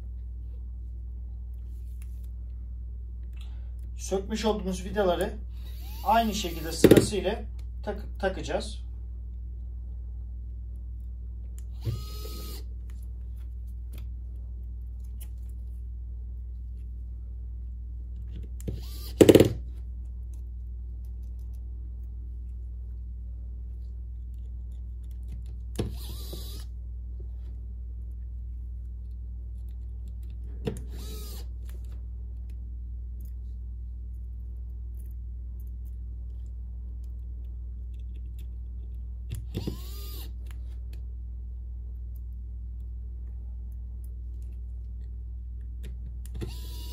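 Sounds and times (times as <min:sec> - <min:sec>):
steady low hum: 0:00.0 - 0:46.9
electric screwdriver whirring: 0:05.6 - 0:07.0, 0:11.7 - 0:12.7, 0:18.7 - 0:19.6, 0:25.9 - 0:26.7, 0:30.9 - 0:31.5, 0:39.6 - 0:40.3, 0:46.4 - 0:46.9.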